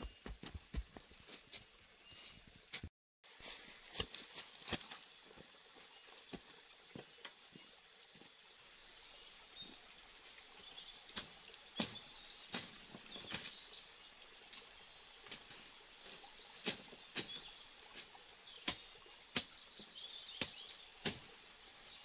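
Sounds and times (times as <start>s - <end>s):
leaves and twigs crackling: 1.1s - 6.4s, 9.7s - 22.0s
footsteps through leaf litter: 2.2s - 5.0s.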